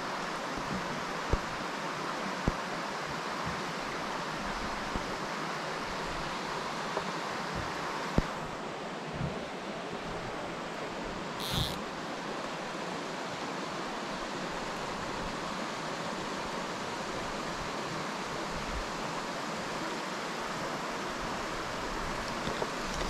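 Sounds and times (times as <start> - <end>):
creek running over rocks: 19.9 - 23.0.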